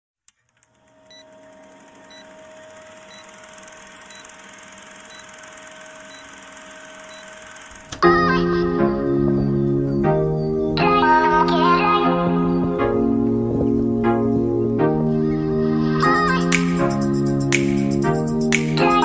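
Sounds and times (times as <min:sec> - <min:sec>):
film projector whirr and hiss: 0:00.6 - 0:08.0
short high beep: 0:06.1 - 0:06.4
loud music: 0:15.1 - 0:19.0.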